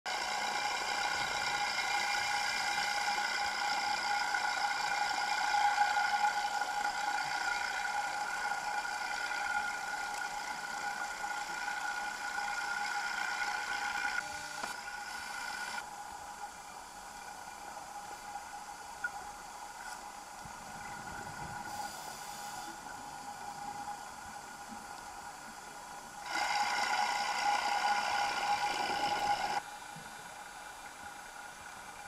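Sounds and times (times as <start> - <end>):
underwater mechanical whine: 0.1 - 32.0
light hiss: 14.2 - 26.2.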